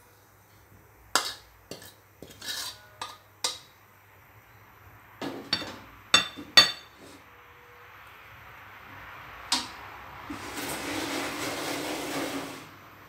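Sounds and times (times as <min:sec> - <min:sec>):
spatula scraping a wok: 0:01.2 - 0:03.6, 0:10.2 - 0:12.8
metal spatula clanking on a wok: 0:01.2 - 0:03.8, 0:05.4 - 0:06.9.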